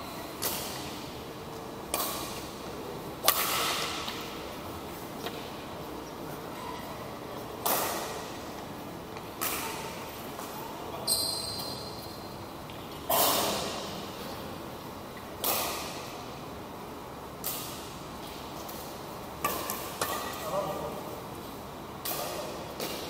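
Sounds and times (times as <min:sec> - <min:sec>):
racket hitting shuttlecock: 0:00.4 - 0:01.0, 0:01.9 - 0:02.6, 0:03.2 - 0:04.4, 0:07.6 - 0:08.5, 0:09.2 - 0:10.6, 0:15.4 - 0:16.2, 0:19.4 - 0:20.5, 0:22.0 - 0:23.0
short high squeak: 0:11.0 - 0:12.1.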